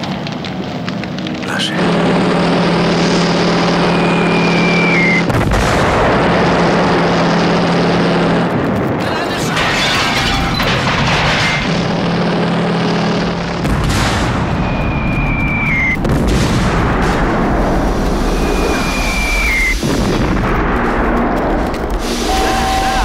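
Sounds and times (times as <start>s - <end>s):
explosions: 0.0s - 23.0s
heavy rumble: 0.0s - 23.0s
falling whistle: 3.8s - 5.3s, 14.6s - 16.0s, 18.3s - 19.8s, 22.2s - 23.0s.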